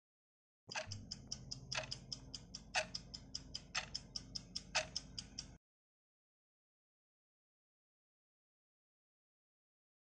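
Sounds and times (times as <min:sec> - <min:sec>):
timer ticking: 0:00.7 - 0:05.6.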